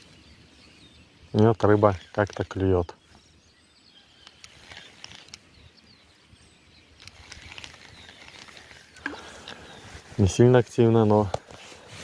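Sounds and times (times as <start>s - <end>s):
faint bird chirps: 0.0s - 11.2s
low outdoor noise: 0.0s - 12.0s
small ticks: 4.2s - 5.5s, 7.0s - 9.7s.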